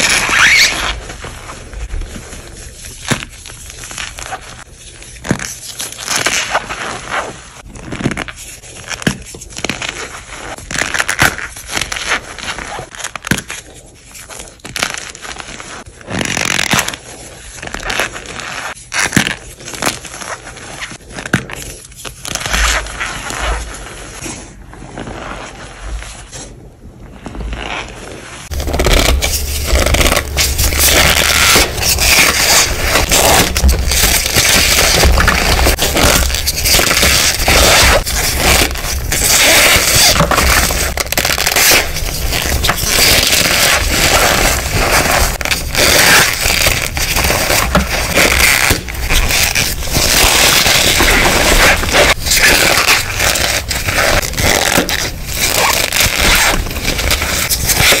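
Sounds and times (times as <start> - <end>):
hands crushing chalk blocks: 28.5 - 58.0.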